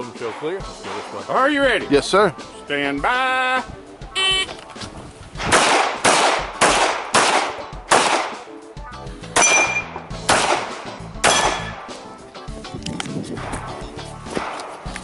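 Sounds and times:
pistol shots: 0:05.4 - 0:08.6, 0:09.4 - 0:12.0, 0:14.3 - 0:14.9
metallic ring: 0:09.4 - 0:10.0.

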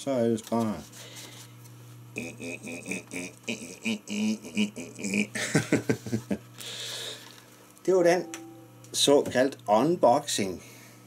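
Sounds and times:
faint low hum: 0:00.4 - 0:11.0
man vocalizing wordless syllables: 0:02.1 - 0:05.4.

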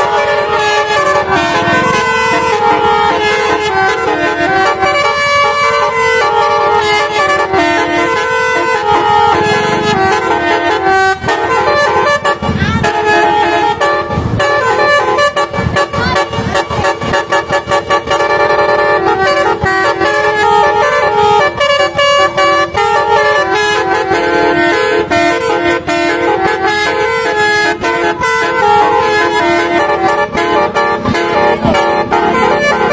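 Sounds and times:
multi-tone air horn playing a tune: 0:00.0 - 0:32.9
low thumps: 0:00.8 - 0:04.1, 0:08.7 - 0:11.6.

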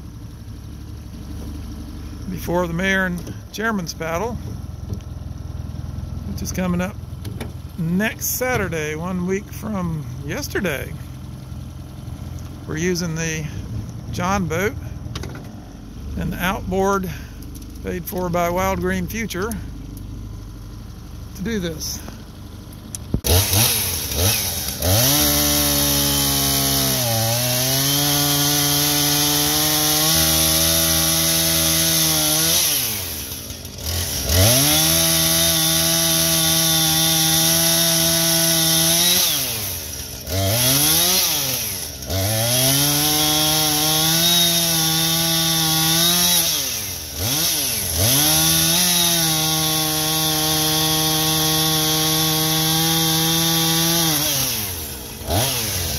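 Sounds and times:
chainsaw cutting tree trunk: 0:22.0 - 0:55.9.

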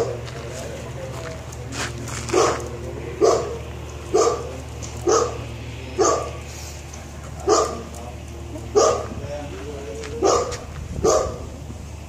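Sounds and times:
dog barking: 0:02.3 - 0:05.4, 0:06.0 - 0:06.4, 0:07.4 - 0:07.9, 0:08.7 - 0:09.2, 0:10.1 - 0:11.5.

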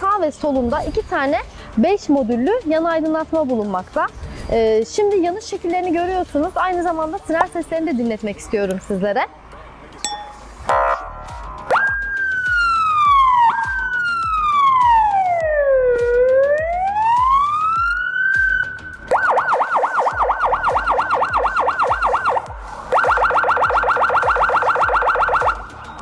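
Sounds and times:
electronic siren wail and yelp: 0:10.7 - 0:26.0.

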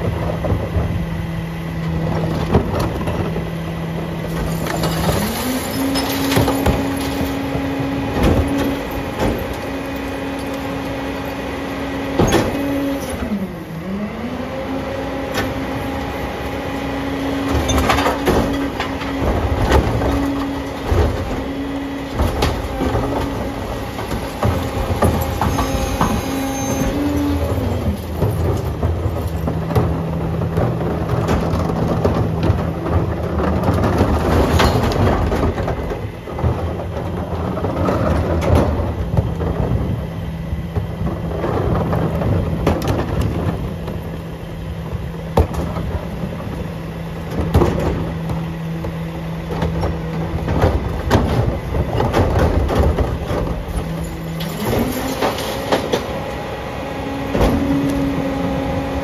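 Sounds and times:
garbage truck engine and hydraulics: 0:00.0 - 0:59.0
recyclables clattering into hopper: 0:01.9 - 0:11.5, 0:15.3 - 0:59.0.

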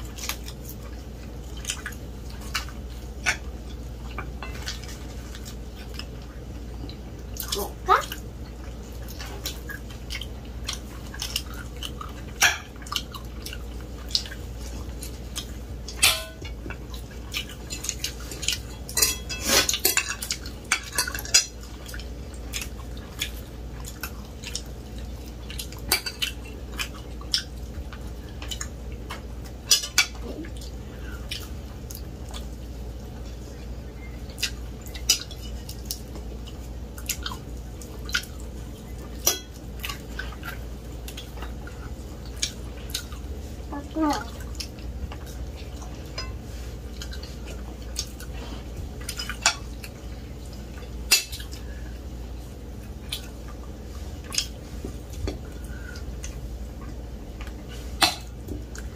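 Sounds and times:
fork clinking on plates: 0:17.8 - 0:21.5.

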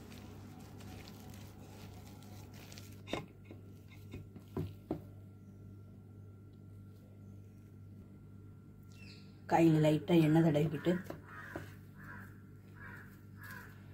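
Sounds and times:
dough rustling in bowl: 0:00.0 - 0:05.0
low hum: 0:00.0 - 0:13.9.

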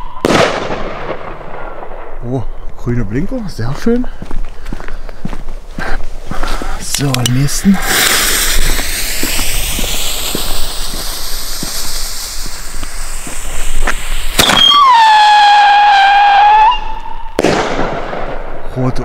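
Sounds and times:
firework bang: 0:00.0 - 0:02.2, 0:07.8 - 0:18.7
firework launch crack: 0:00.0 - 0:02.2, 0:06.6 - 0:18.8
fuse hissing: 0:06.3 - 0:17.1
firework shell howling: 0:06.8 - 0:18.7.

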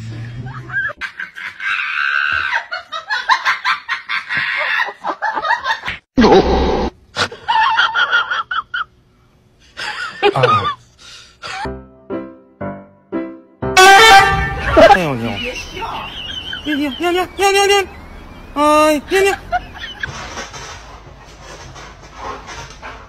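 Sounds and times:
people laughing: 0:09.8 - 0:10.8, 0:14.4 - 0:17.8, 0:19.0 - 0:20.4.

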